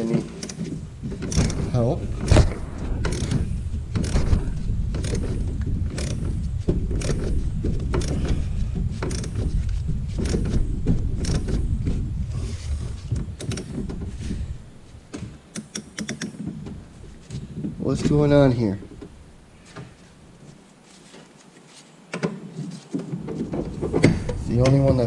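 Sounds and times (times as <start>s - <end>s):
low-pitched steady noise: 0.8s - 13.3s
ratchet wrench clicking: 1.2s - 1.6s, 3.1s - 3.4s, 4.0s - 4.3s, 5.0s - 6.2s, 7.0s - 7.3s, 9.0s - 9.4s, 11.2s - 11.5s.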